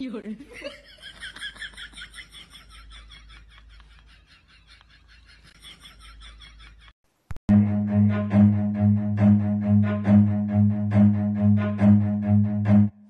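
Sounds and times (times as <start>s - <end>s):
cello music: 7.5s - 13.0s.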